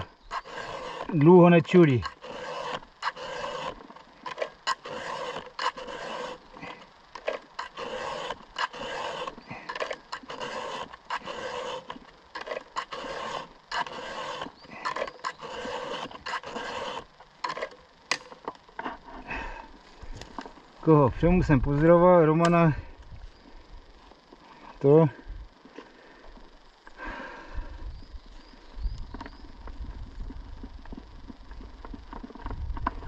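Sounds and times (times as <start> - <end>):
file rasping on chain: 0.0 - 17.8.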